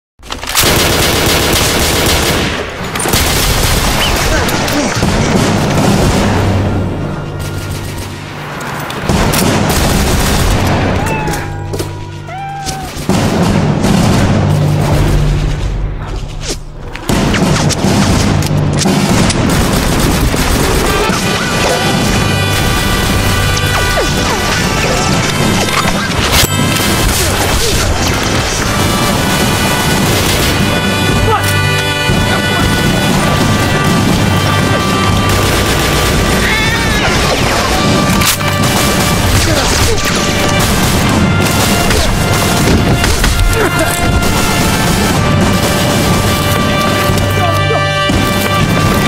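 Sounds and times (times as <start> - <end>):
gunfire: 0.4 - 11.9, 12.9 - 16.0, 17.0 - 49.0
action film music: 0.5 - 49.0
booms: 2.3 - 8.4, 12.8 - 16.2, 17.0 - 49.0
crashing impacts: 12.8 - 49.0.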